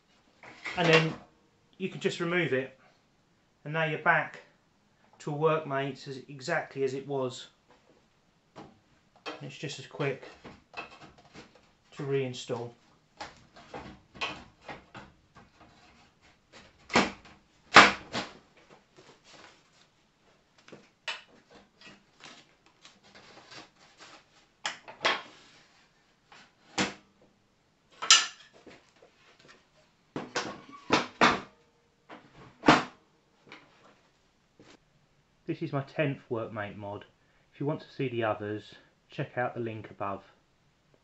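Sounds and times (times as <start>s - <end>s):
workbench parts clunking and knocking: 13.2s - 16.0s, 24.7s - 25.4s, 28.0s - 28.8s, 30.2s - 31.5s.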